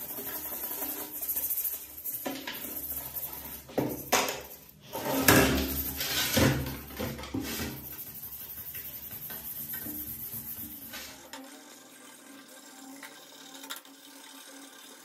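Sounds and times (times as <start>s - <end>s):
brush scrubbing plastic case: 0.0s - 11.4s.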